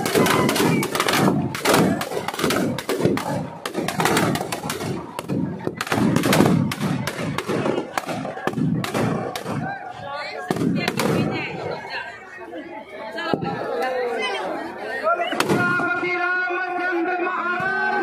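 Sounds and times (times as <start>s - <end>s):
firecrackers banging and crackling: 0.0s - 11.8s, 15.3s - 16.0s
crowd voices: 0.0s - 18.0s.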